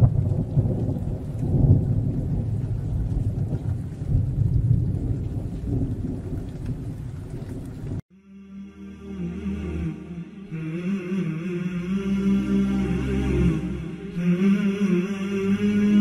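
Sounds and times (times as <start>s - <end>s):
deep rolling thunder: 0.0s - 8.0s.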